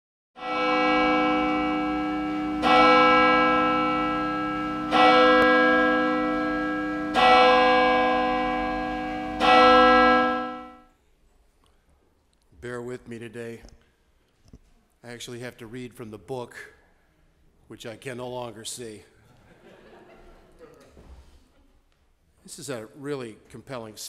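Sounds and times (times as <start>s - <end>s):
church bell tolling: 0.4s - 10.9s.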